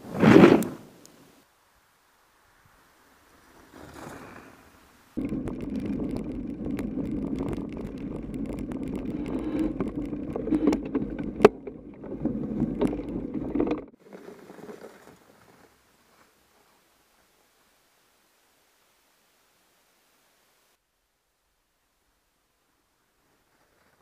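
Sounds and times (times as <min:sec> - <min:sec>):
bike tyre rolling through snow: 0:00.0 - 0:01.5, 0:02.2 - 0:18.1, 0:22.6 - 0:24.0
bike rattles and clicks: 0:05.2 - 0:15.7.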